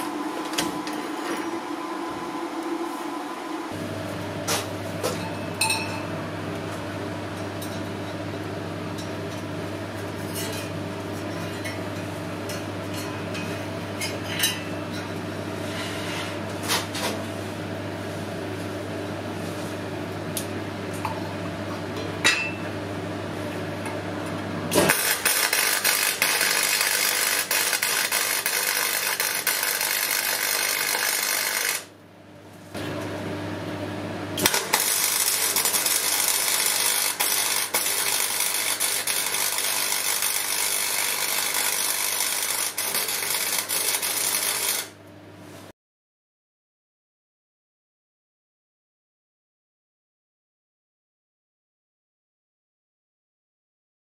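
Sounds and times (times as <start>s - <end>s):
welding crackling hiss: 24.9s - 31.8s, 34.4s - 44.9s.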